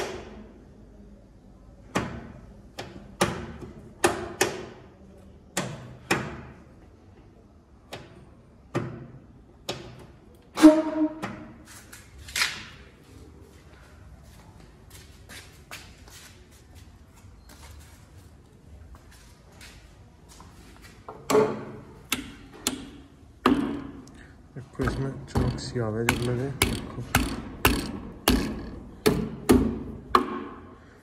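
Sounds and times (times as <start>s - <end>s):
knocks on sheet metal: 22.2s - 24.0s, 24.8s - 30.6s.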